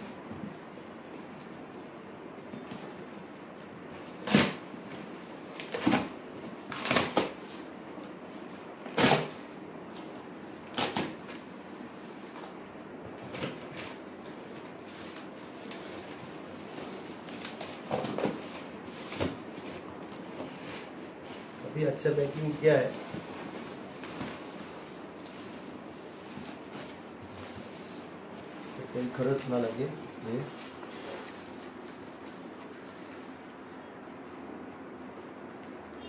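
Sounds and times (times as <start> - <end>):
cardboard ripping: 4.1 - 4.6, 5.5 - 7.4, 8.9 - 9.5.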